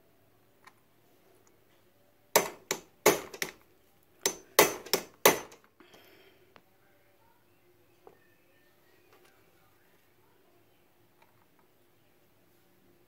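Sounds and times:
hammer striking metal chisel: 0:02.4 - 0:03.6, 0:04.2 - 0:05.6.

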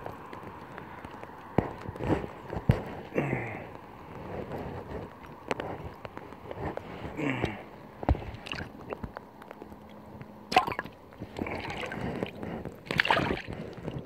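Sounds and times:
water sloshing and gurgling: 0:04.1 - 0:14.0
water drips: 0:08.1 - 0:14.0
water splashes: 0:08.1 - 0:14.0.

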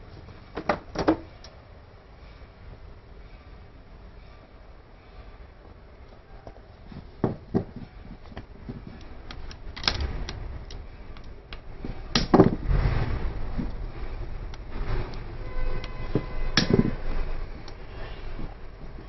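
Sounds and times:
rough handling noise: 0:05.6 - 0:19.0
low rumble: 0:09.5 - 0:19.0.

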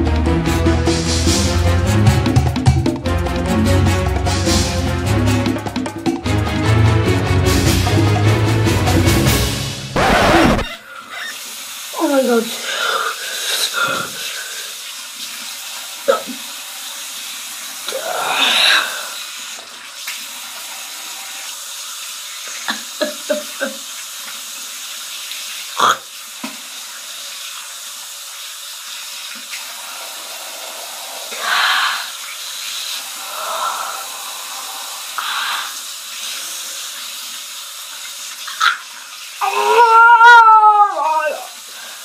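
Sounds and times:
water splashes: 0:10.0 - 0:42.0.

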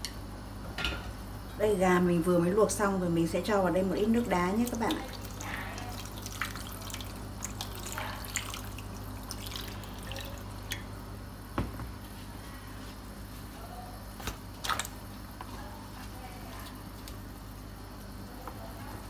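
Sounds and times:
water pouring and splashing into a tub: 0:04.5 - 0:10.9, 0:14.2 - 0:17.2.

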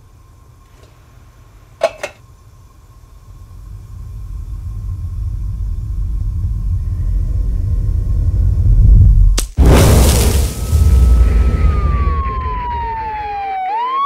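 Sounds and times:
deep low rumble: 0:03.0 - 0:13.4.

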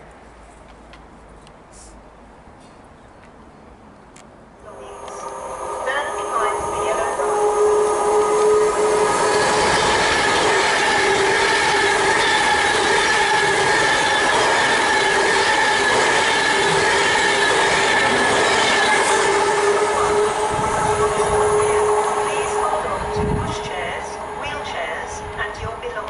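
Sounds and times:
electric train passing at speed: 0:04.4 - 0:26.0
high whine: 0:04.6 - 0:25.4.

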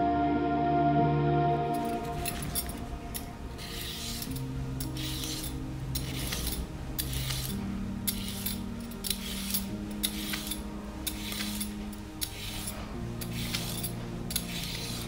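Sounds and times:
slow background music: 0:00.0 - 0:15.0
peeler scraping carrot: 0:03.5 - 0:15.0.

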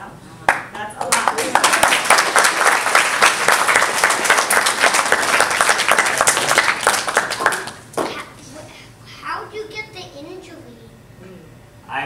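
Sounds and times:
audience applauding: 0:00.5 - 0:08.3.

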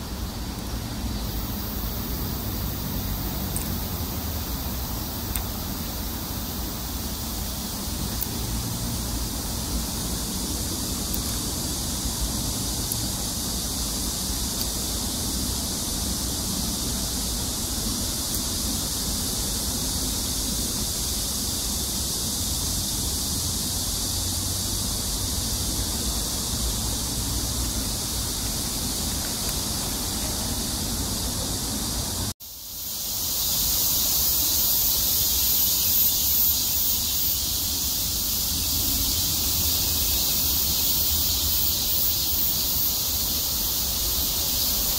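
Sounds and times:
outdoor background hiss: 0:00.0 - 0:44.9.

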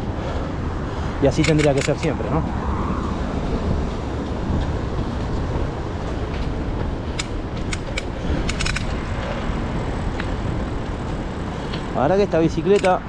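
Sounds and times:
wind and rolling noise: 0:00.0 - 0:13.0
metallic clicks and rattles: 0:01.4 - 0:02.2, 0:06.3 - 0:09.4, 0:12.6 - 0:13.0.

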